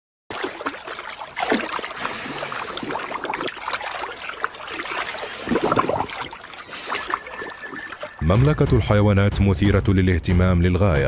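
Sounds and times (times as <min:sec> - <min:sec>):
animal splashing through water: 0:00.3 - 0:08.3.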